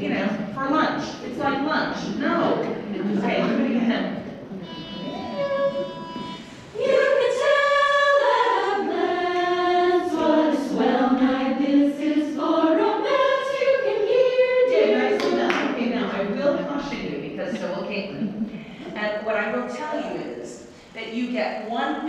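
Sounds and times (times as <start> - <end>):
choir singing: 4.6 - 15.8.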